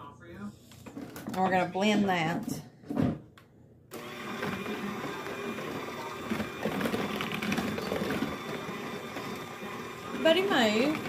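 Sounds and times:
electric hand mixer running: 3.9 - 11.0.

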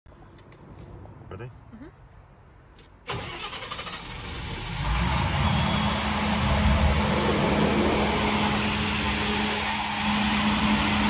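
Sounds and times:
diesel generator engine starting: 3.0 - 11.0
starter motor cranking: 3.1 - 4.8.

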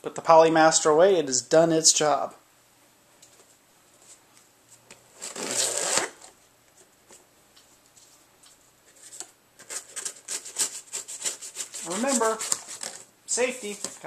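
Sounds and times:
knife cutting cardboard and tape: 5.2 - 6.2, 9.8 - 13.0
loud rustling scrape: 5.2 - 6.2, 9.0 - 13.0.

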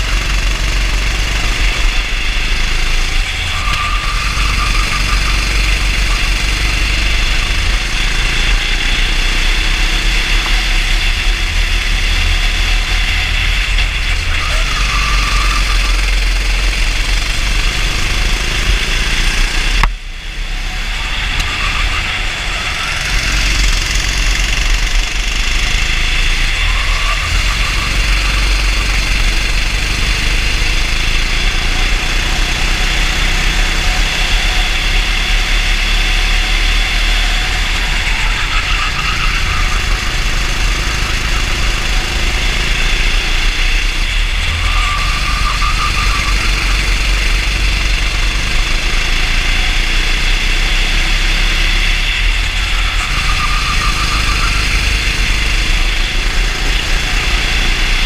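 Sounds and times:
heavy low rumble: 0.0 - 50.8
racing kart engine: 0.0 - 58.0.

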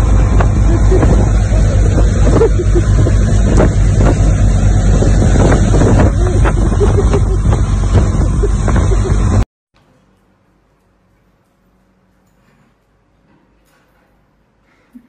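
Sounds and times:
motorboat engine running: 0.0 - 9.4
water from boat wake: 0.0 - 9.4
wind on microphone: 0.0 - 9.4.

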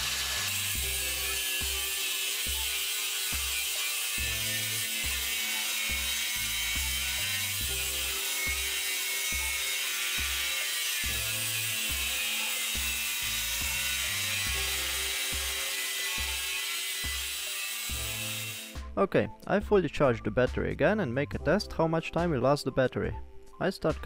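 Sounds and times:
angle grinder cutting steel: 0.0 - 18.8.

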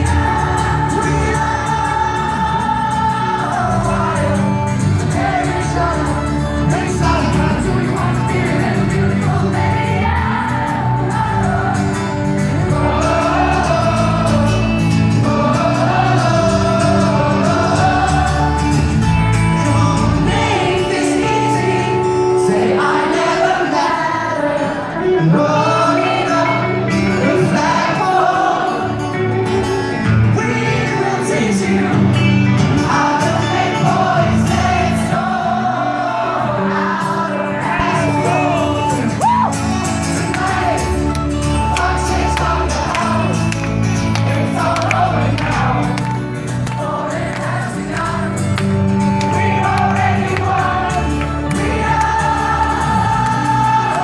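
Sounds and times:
man singing: 0.0 - 10.0, 12.5 - 43.4
acoustic guitars strumming: 0.0 - 54.0
crowd singing along: 0.0 - 54.0.

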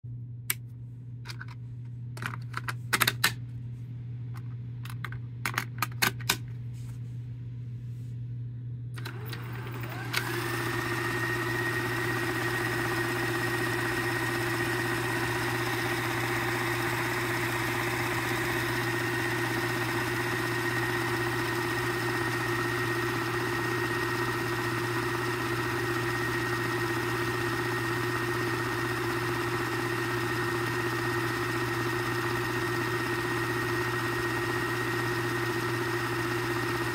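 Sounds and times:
low hum: 0.1 - 9.4
tape drive whine: 8.8 - 36.9.

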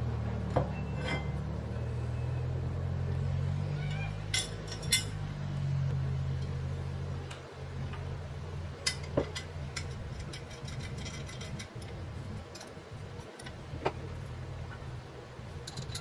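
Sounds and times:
steady low hum: 0.0 - 16.0
small parts clicking and tapping: 15.6 - 16.0.

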